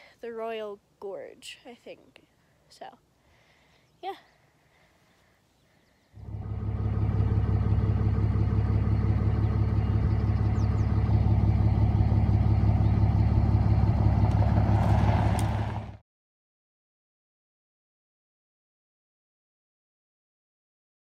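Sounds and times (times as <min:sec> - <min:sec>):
vehicle engine idling: 0:06.2 - 0:16.0.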